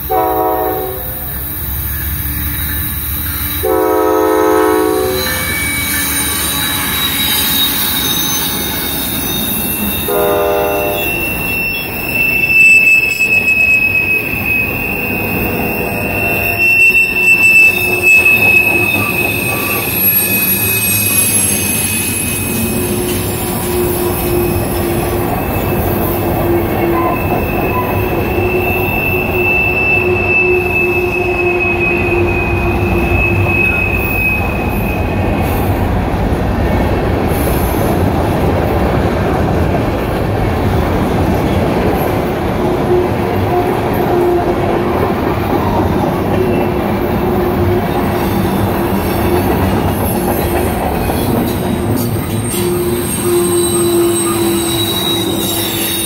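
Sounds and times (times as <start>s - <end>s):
locomotive horn: 0.0s - 1.3s, 3.6s - 8.0s, 10.0s - 11.6s, 22.6s - 35.1s, 42.7s - 44.8s, 52.5s - 56.0s
train wheels squealing: 0.0s - 36.0s, 43.0s - 56.0s.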